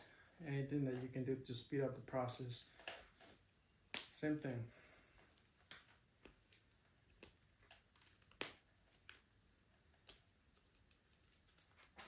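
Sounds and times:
plastic snapping: 0:03.9 - 0:04.2, 0:07.2 - 0:09.3.

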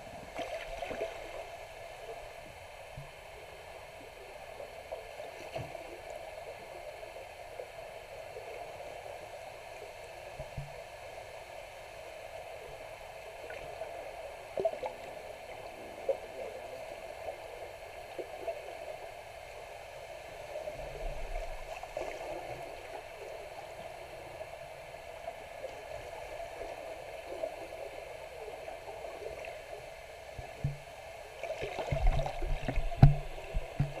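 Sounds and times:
underwater gurgling wash: 0:00.0 - 0:11.3, 0:12.0 - 0:34.0
low thumps underwater: 0:30.4 - 0:30.9, 0:31.6 - 0:34.0.

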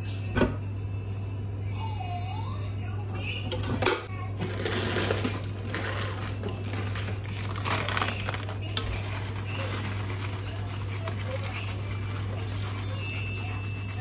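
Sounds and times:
plastic bag rustling: 0:04.4 - 0:14.0.

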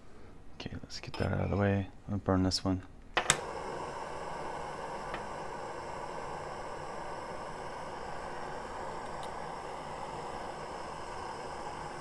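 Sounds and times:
butane torch hissing: 0:03.2 - 0:12.0.

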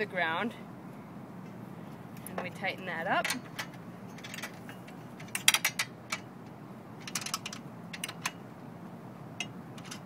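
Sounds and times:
wrench clicking tightening nuts: 0:07.0 - 0:08.4.

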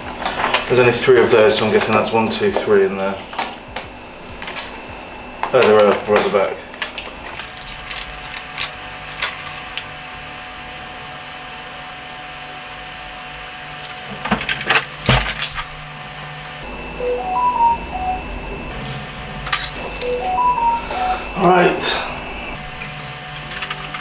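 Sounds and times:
mobile phone ringing: 0:16.9 - 0:22.0.

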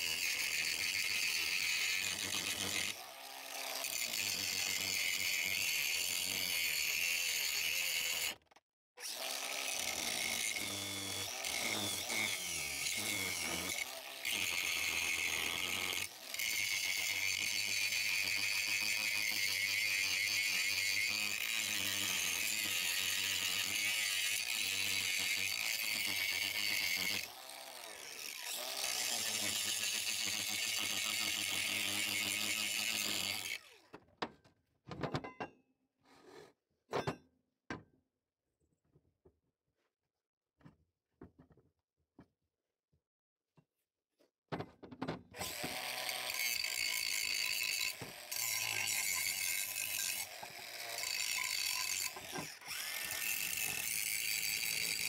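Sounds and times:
angle grinder grinding steel: 0:00.0 - 0:08.4, 0:09.0 - 0:33.8, 0:45.4 - 0:55.0.

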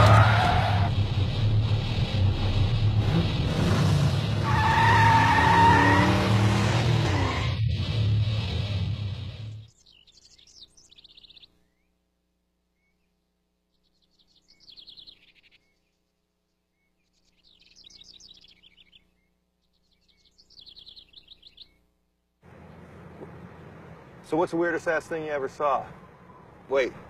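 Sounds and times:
songbird trilling: 0:09.7 - 0:11.9, 0:13.7 - 0:16.0, 0:16.7 - 0:21.8.

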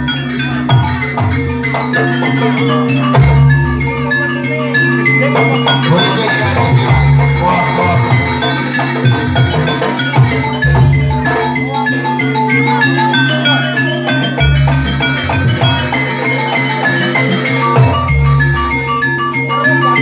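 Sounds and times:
hand drum beats: 0:00.0 - 0:04.2, 0:05.2 - 0:19.0
gamelan music over loudspeakers: 0:00.0 - 0:20.0.

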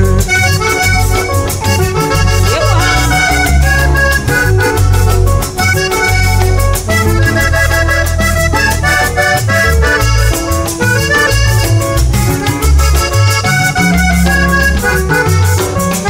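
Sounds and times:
button accordion melody: 0:00.0 - 0:16.0
electric guitars: 0:00.0 - 0:16.0
heavy bass line: 0:00.0 - 0:16.0
steady percussion: 0:00.0 - 0:16.0.

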